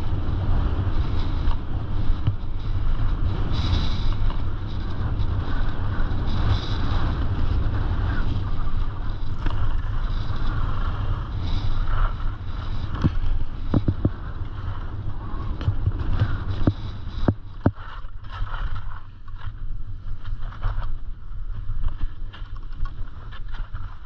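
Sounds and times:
wind rushing over microphone: 0:00.0 - 0:24.0
skis hissing across snow: 0:02.5 - 0:19.2.

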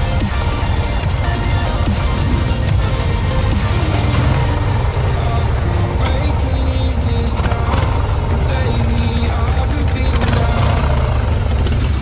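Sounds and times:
background music: 0:00.0 - 0:12.0
motorcycle engines rumbling: 0:00.0 - 0:12.0.

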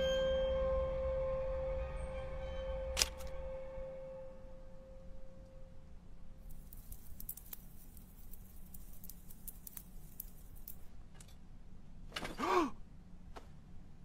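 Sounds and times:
ringing tone: 0:00.0 - 0:02.8
low steady hum: 0:00.0 - 0:14.0
small clicks and ticks: 0:06.4 - 0:11.3.

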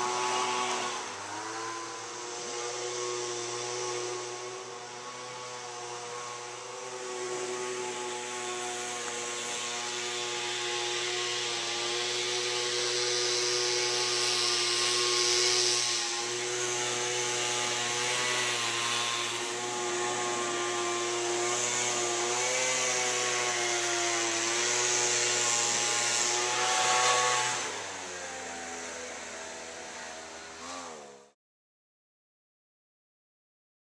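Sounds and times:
engine running: 0:00.0 - 0:22.4
high hiss: 0:06.0 - 0:19.6.

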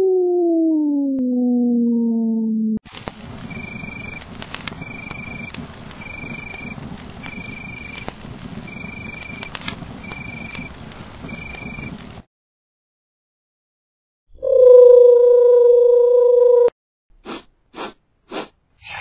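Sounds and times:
campfire crackling and popping: 0:02.9 - 0:12.2.

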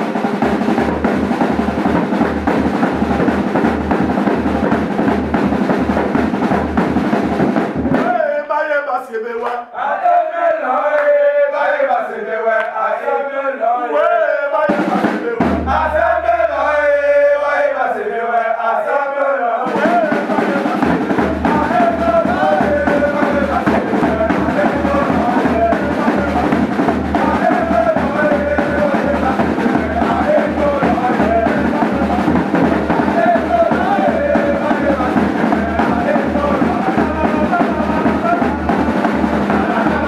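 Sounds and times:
heavy drumming: 0:00.0 - 0:08.5, 0:14.6 - 0:17.6, 0:19.6 - 0:40.0
group of men chanting: 0:07.9 - 0:40.0.

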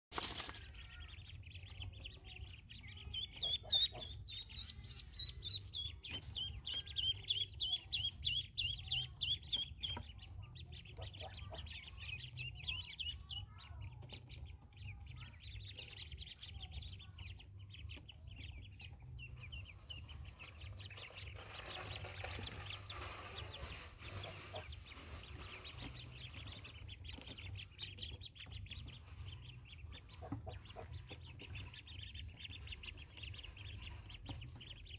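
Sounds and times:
ducklings peeping: 0:00.2 - 0:34.9.

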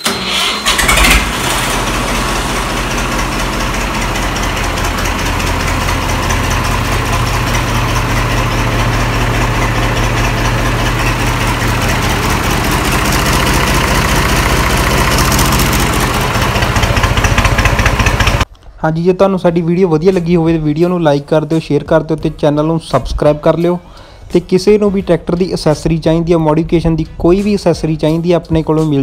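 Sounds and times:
diesel tractor engine idling: 0:00.0 - 0:18.5.

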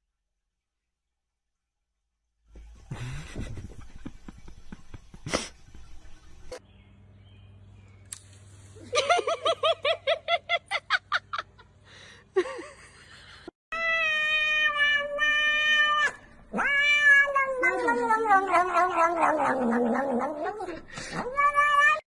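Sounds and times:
cat yowling: 0:13.8 - 0:22.0.

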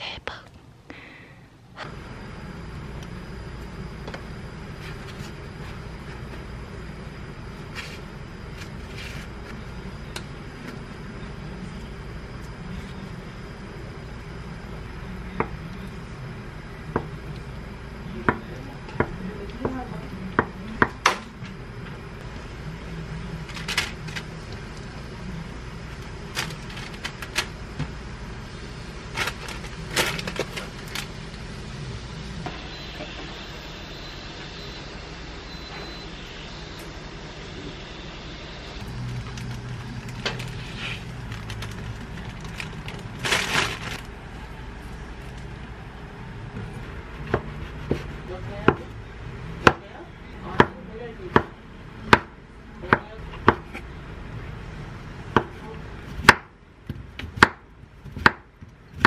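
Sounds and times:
steady low hum: 0:00.0 - 0:59.0
parchment paper crackling: 0:23.5 - 0:24.4, 0:26.2 - 0:27.5, 0:29.1 - 0:31.2, 0:38.8 - 0:45.6.

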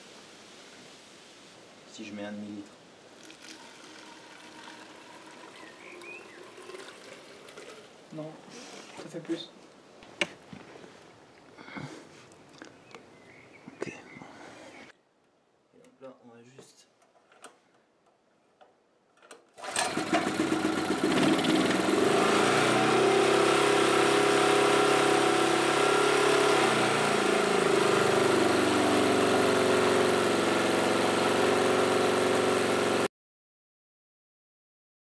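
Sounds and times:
generator engine starting and running: 0:19.6 - 0:33.1.

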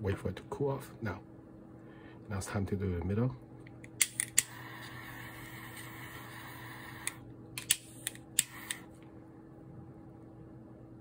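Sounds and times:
torch lighter clicking: 0:03.9 - 0:04.8, 0:06.7 - 0:08.9
torch flame hissing: 0:04.4 - 0:07.3, 0:08.0 - 0:08.9.

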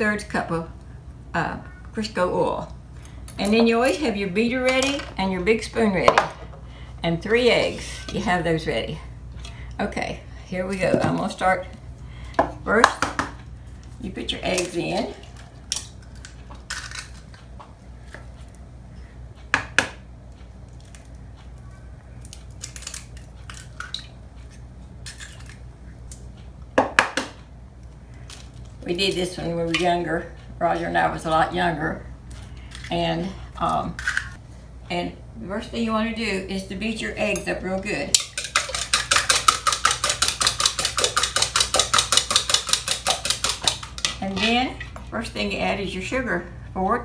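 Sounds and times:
eggs beaten in a bowl: 0:37.3 - 0:44.9.

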